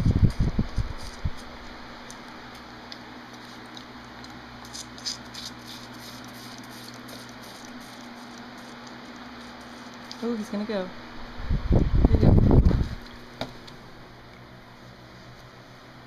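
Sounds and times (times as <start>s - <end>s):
electric fan hum: 0.0s - 16.0s
fawn sucking at a bottle: 2.9s - 10.3s.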